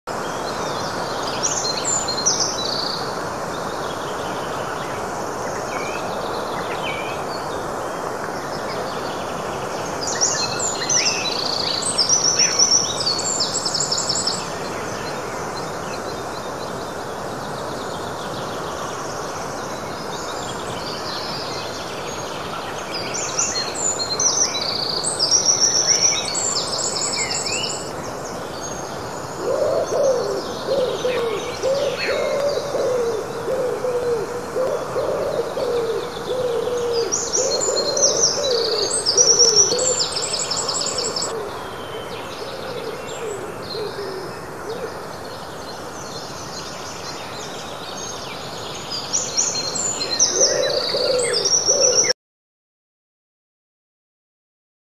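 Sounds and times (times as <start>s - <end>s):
songbirds singing: 0.1s - 52.1s
bird hooting call: 29.4s - 41.6s, 50.1s - 52.1s.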